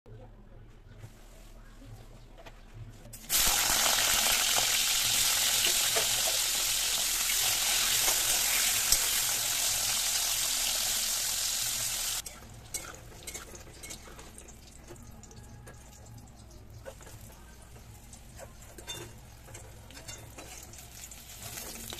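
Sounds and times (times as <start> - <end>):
vegetables sizzling in hot oil: 3.3 - 14.8, 18.0 - 21.9.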